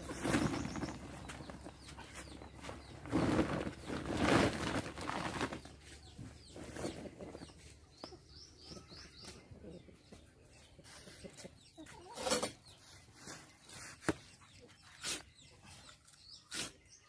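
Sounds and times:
sack rustling: 0:00.0 - 0:01.9, 0:02.5 - 0:05.8
bird chirping: 0:00.0 - 0:17.0.

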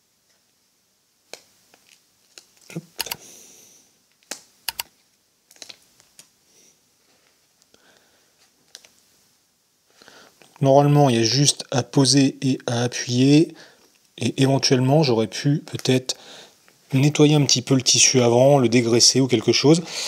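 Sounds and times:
sharp crackles and snaps: 0:04.1 - 0:06.3.

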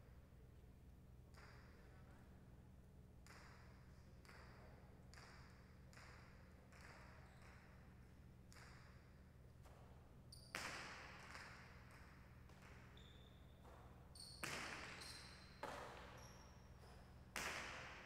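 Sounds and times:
ball cracking against wall: 0:17.3 - 0:18.0.

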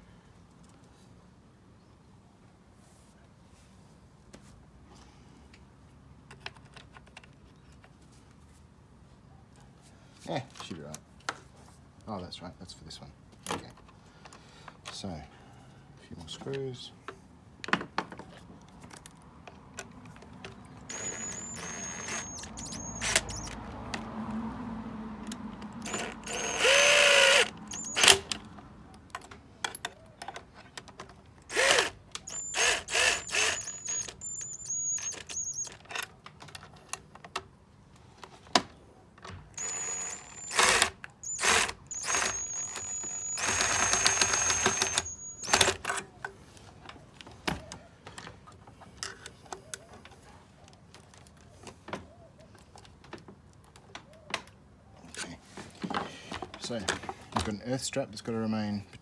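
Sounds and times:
cordless drill driving screws: 0:20.9 - 0:23.6, 0:25.8 - 0:28.3, 0:31.5 - 0:35.8, 0:39.6 - 0:46.0
screws and parts rattling: 0:20.9 - 0:23.6, 0:30.6 - 0:37.0, 0:39.6 - 0:46.0.

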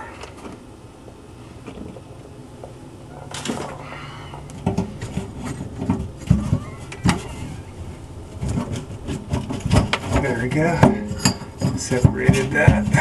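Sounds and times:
metal knocks and clanks: 0:04.6 - 0:13.0.

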